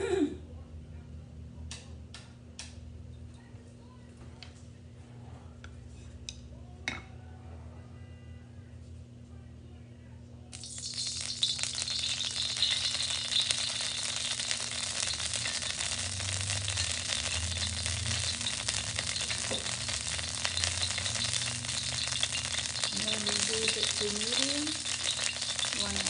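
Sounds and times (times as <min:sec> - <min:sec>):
oil sizzling in a wok: 0:10.5 - 0:26.0.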